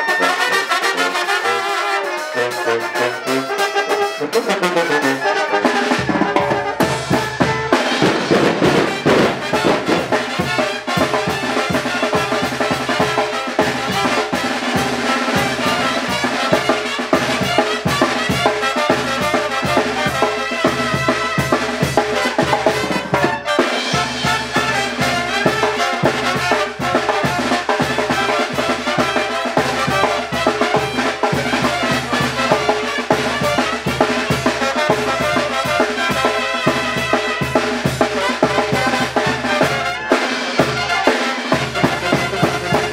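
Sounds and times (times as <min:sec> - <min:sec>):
drums and percussion beat: 0:00.0 - 0:42.9
trumpets and brass: 0:00.0 - 0:42.9
sousaphone bass line: 0:04.7 - 0:13.2.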